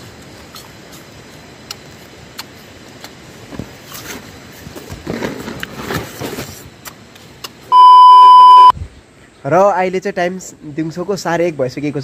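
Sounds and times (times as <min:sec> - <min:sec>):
person chewing crisp pear: 0:00.1 - 0:03.2.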